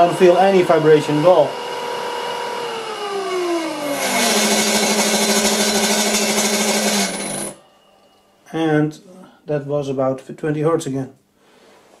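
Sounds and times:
electric motor whine: 0:00.0 - 0:07.6.

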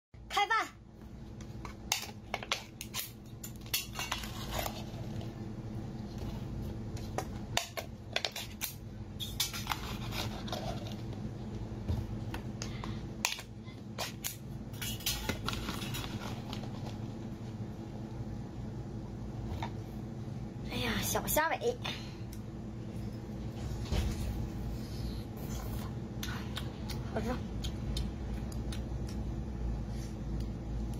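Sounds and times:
steady low hum: 0:00.2 - 0:30.9.

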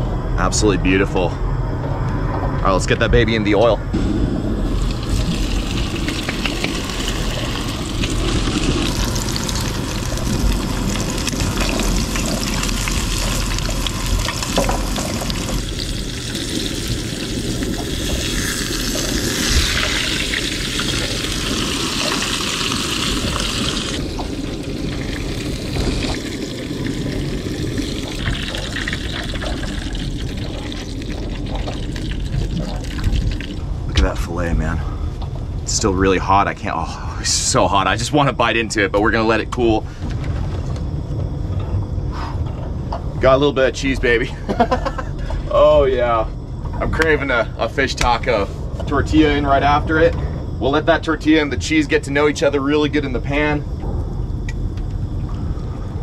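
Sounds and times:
low rumble: 0:00.0 - 0:56.0
fish fillet sizzling in oil: 0:04.6 - 0:33.6.

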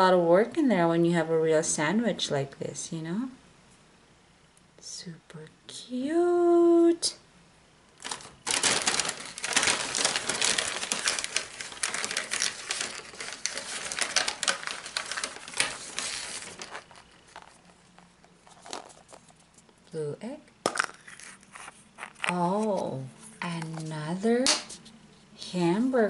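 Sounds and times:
paper bag rustling and crinkling: 0:08.0 - 0:19.6.

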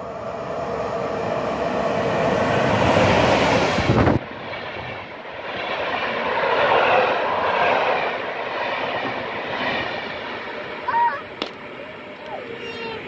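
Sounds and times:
train wheels running over rails: 0:00.0 - 0:12.8
electric locomotive passing: 0:00.0 - 0:13.0.

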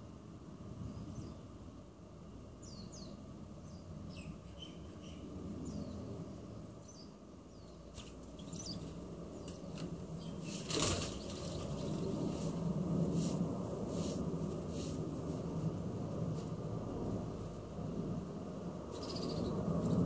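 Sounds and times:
small birds chirping: 0:00.8 - 0:01.7, 0:02.5 - 0:12.6, 0:18.9 - 0:20.0
flurry of wingbeats: 0:07.9 - 0:15.1.

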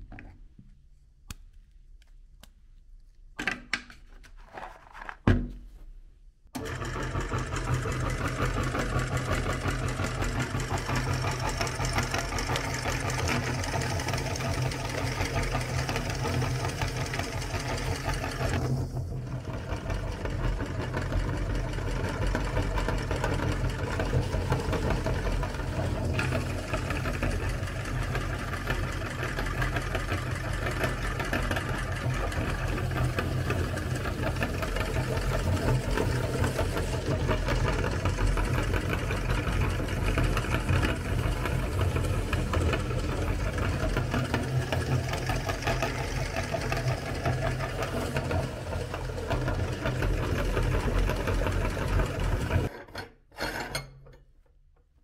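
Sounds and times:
meat grinder humming: 0:06.6 - 0:52.7.

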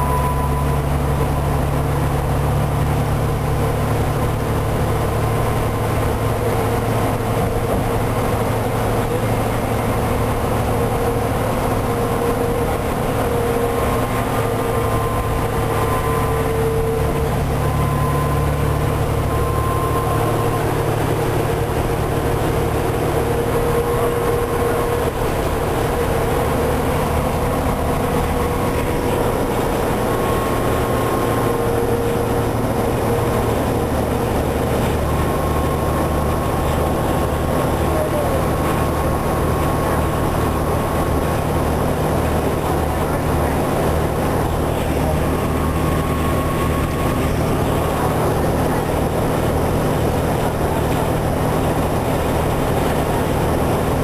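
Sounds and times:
bus engine drone: 0:00.0 - 0:54.0
faint whine: 0:00.0 - 0:54.0
road and rattle noise: 0:00.0 - 0:54.0.

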